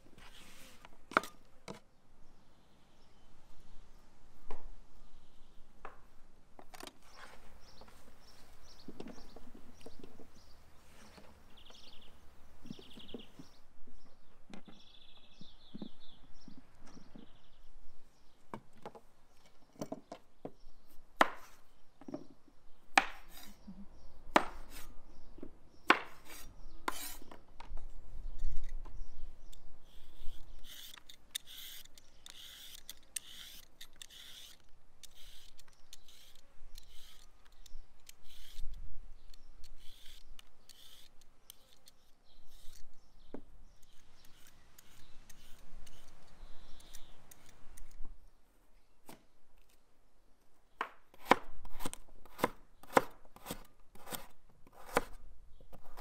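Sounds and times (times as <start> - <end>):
peeler scraping carrot: 29.8 - 38.8, 39.4 - 42.9, 43.8 - 48.0.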